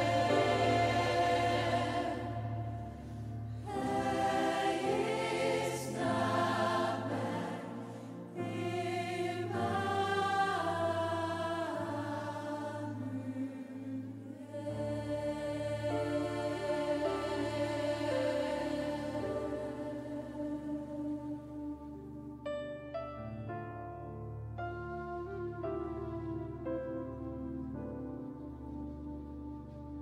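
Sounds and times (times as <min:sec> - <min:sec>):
choir singing slow chords: 0:00.0 - 0:22.5, 0:24.6 - 0:30.0.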